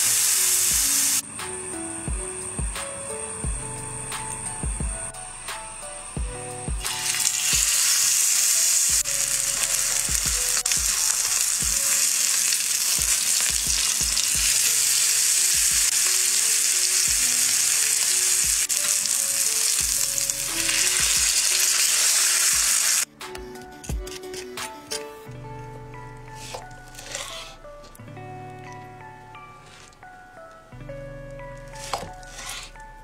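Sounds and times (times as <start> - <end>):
steak sizzling in oil: 0.0 - 1.2, 6.9 - 23.0.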